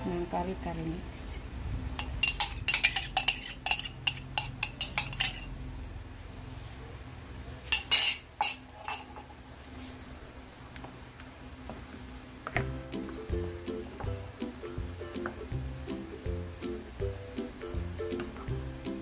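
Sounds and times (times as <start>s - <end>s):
wooden spoon scraping bowl and pan: 2.3s - 5.5s.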